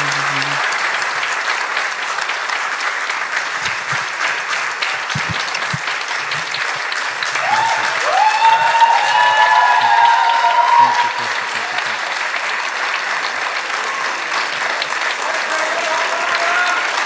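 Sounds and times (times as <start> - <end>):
audience applauding: 0.0 - 17.0.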